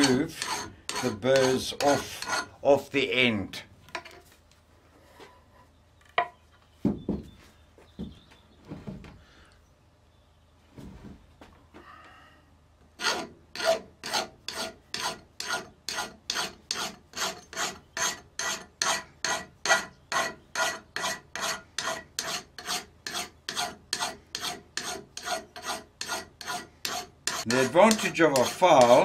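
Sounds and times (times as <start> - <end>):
hand file rasping on steel: 0.0 - 2.6, 13.0 - 29.0.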